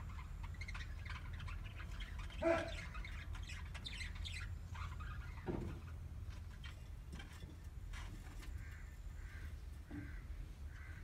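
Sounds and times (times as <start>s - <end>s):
budgerigars chirping: 0.0s - 6.0s.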